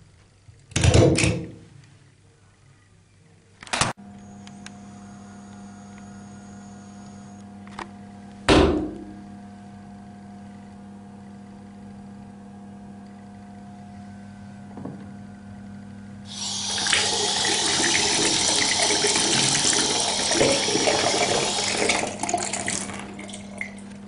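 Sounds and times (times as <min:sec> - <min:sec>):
electrical appliance hum: 0:00.0 - 0:24.0
loud thump: 0:08.5 - 0:09.2
short clunk: 0:08.5 - 0:09.2.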